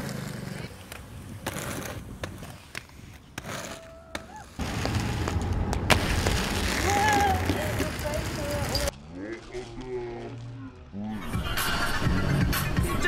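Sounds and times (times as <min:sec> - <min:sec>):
roller skate scrapes and clicks: 0:00.0 - 0:08.9
skate wheels rolling on pavement: 0:00.0 - 0:10.4.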